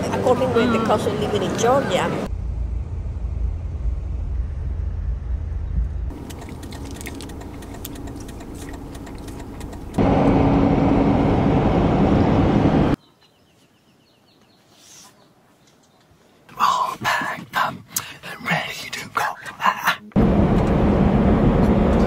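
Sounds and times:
car cabin road noise: 0:00.0 - 0:13.0, 0:20.1 - 0:22.0.

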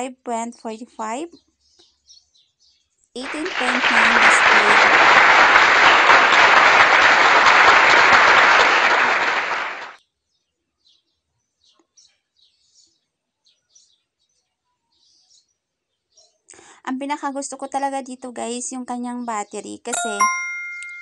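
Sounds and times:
loud dense crackling: 0:03.2 - 0:10.0.

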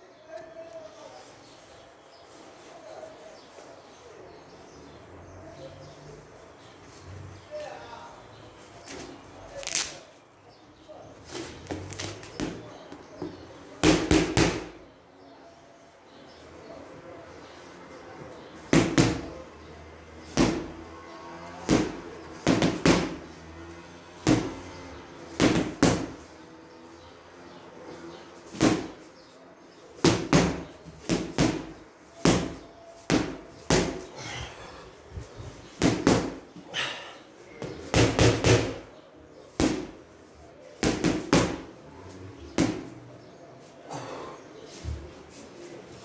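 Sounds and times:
boxing glove punches: 0:13.8 - 0:14.8, 0:18.7 - 0:19.3, 0:20.3 - 0:20.7, 0:21.7 - 0:23.2, 0:24.2 - 0:24.5, 0:25.4 - 0:26.2, 0:28.5 - 0:29.0, 0:30.0 - 0:34.1, 0:35.8 - 0:36.4, 0:37.6 - 0:38.8, 0:39.6 - 0:40.0, 0:40.8 - 0:41.7, 0:42.6 - 0:42.9.

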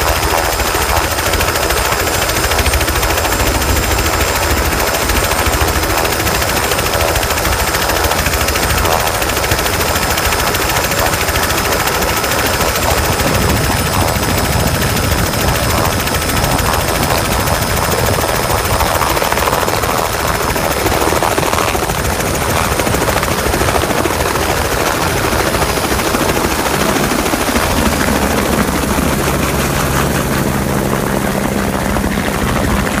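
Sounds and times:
helicopter rotor chopping: 0:00.0 - 0:33.0.

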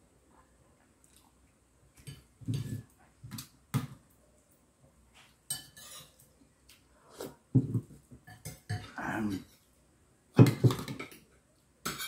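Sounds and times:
spoon scraping a dish: 0:05.5 - 0:06.2.

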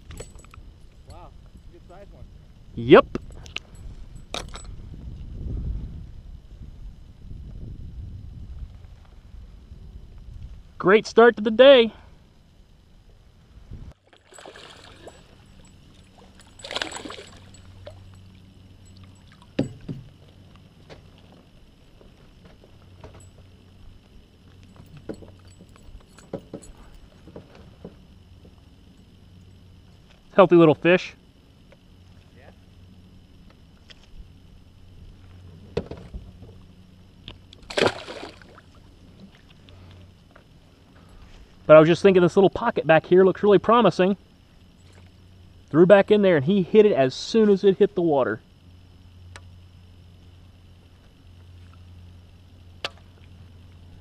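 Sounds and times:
fish splashing at water surface: 0:14.1 - 0:15.4, 0:16.6 - 0:17.6, 0:37.6 - 0:38.8.

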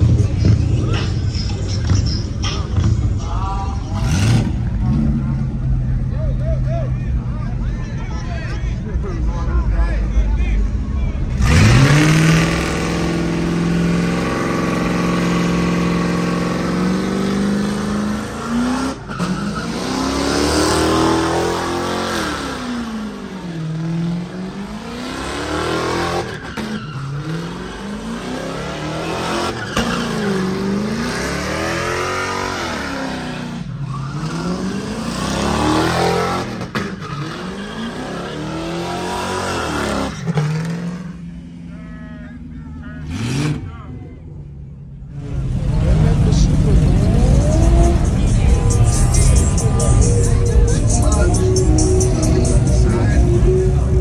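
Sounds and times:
car engine revving: 0:00.0 - 0:07.2, 0:10.6 - 0:41.9, 0:43.0 - 0:44.0, 0:44.9 - 0:54.0
tyres screeching: 0:24.6 - 0:41.0.

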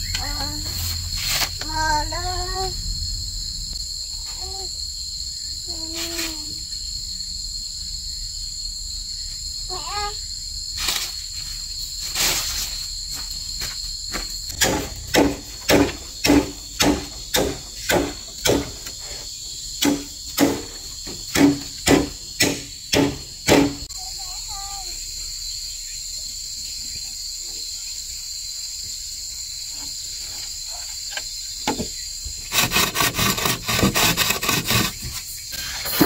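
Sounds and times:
insects droning: 0:00.0 - 0:36.0
hollow knocks on bamboo: 0:14.6 - 0:19.0, 0:19.8 - 0:23.9.

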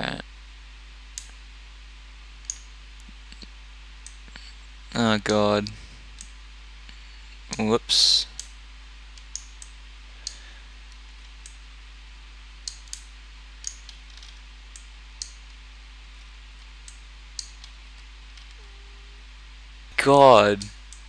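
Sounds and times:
low electrical hum: 0:00.0 - 0:21.0
computer mouse clicking: 0:02.4 - 0:02.7, 0:12.6 - 0:15.4, 0:16.8 - 0:18.6.

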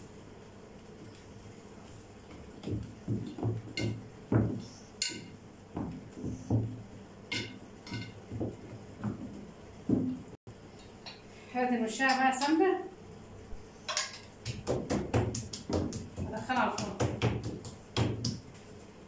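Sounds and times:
hands pressing dough: 0:02.2 - 0:10.4, 0:14.4 - 0:18.6.

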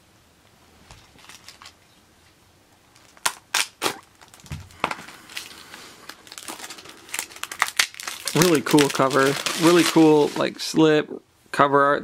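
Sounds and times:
plastic crinkling: 0:00.9 - 0:01.9, 0:02.9 - 0:10.8
plastic wrap crackling: 0:00.9 - 0:01.9, 0:02.9 - 0:10.8.

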